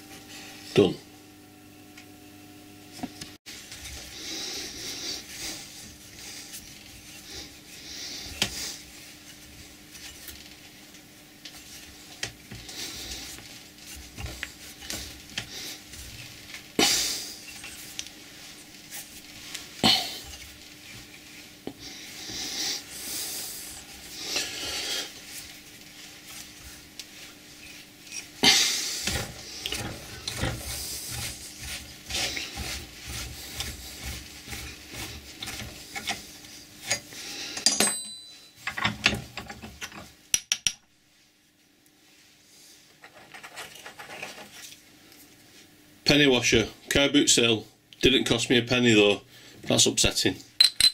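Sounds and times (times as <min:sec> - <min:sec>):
faint steady hum: 0:00.0 - 0:50.9
metal scraping and rubbing: 0:27.4 - 0:37.1.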